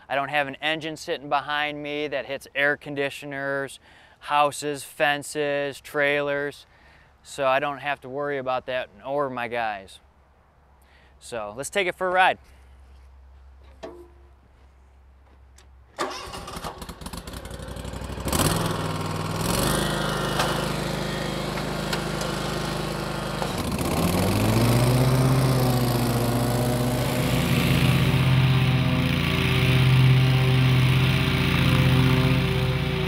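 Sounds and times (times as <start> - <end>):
mower engine starter cranking: 16.0 - 26.4
mower engine running: 16.0 - 33.0.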